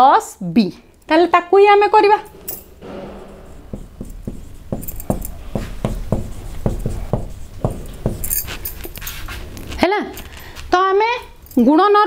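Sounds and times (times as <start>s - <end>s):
marker writing on whiteboard: 3.1s - 9.4s.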